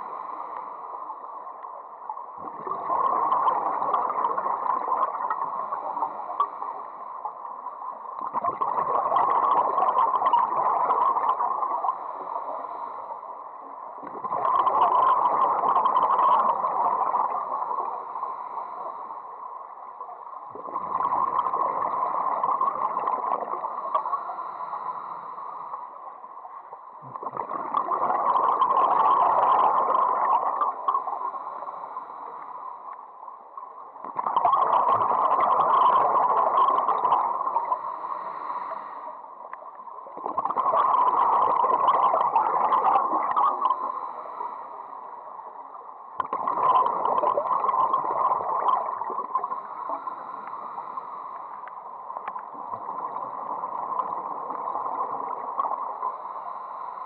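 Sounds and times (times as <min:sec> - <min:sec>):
regulator inhalations: 0:23.7 - 0:26.0, 0:37.4 - 0:39.3, 0:43.8 - 0:45.3, 0:49.5 - 0:51.9, 0:56.0 - 0:57.0
scuba regulator bubbling exhalation: 0:27.0 - 0:31.2.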